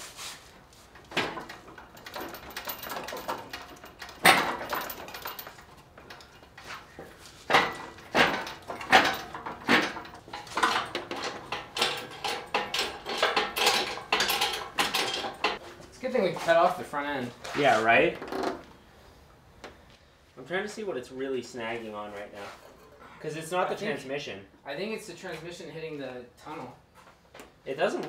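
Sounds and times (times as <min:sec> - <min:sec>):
metallic clanks of tools and car parts: 0:00.9 - 0:15.7, 0:22.4 - 0:23.2.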